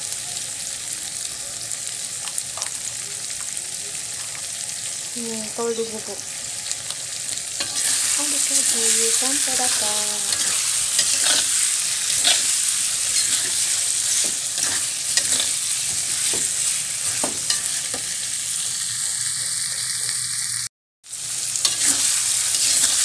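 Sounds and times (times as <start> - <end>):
food sizzling in a wok: 0.0 - 23.0
metal spatula scraping a pan: 7.6 - 18.2, 21.6 - 23.0.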